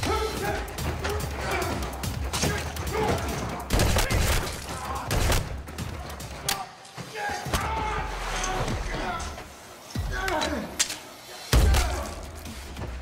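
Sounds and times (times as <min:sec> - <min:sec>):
rapid gunshots and hits: 0:00.7 - 0:06.6.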